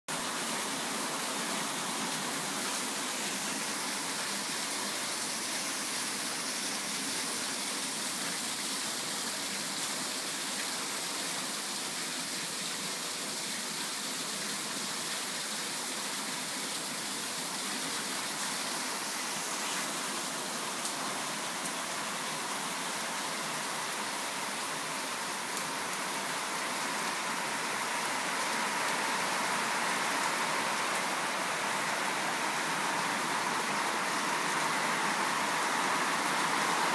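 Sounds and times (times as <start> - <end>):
steady rain falling: 0.1 - 36.9.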